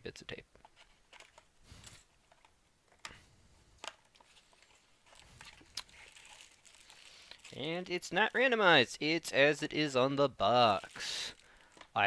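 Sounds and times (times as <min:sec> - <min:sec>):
cardboard rustling: 0:04.0 - 0:07.9.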